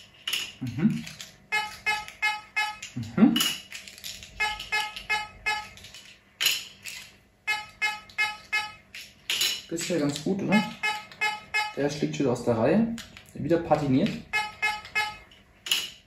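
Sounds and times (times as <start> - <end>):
metal detector beeps: 1.5 - 3.0, 4.4 - 5.8, 7.5 - 8.8, 10.6 - 12.0, 14.2 - 15.3.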